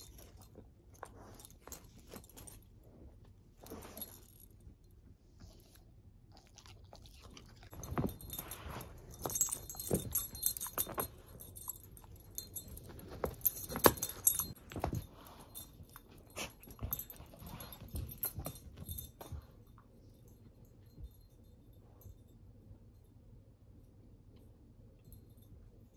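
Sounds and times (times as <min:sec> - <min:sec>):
collar tags jingling: 0:00.0 - 0:04.8, 0:07.2 - 0:22.4
scuffling and soft thumps: 0:07.8 - 0:19.7.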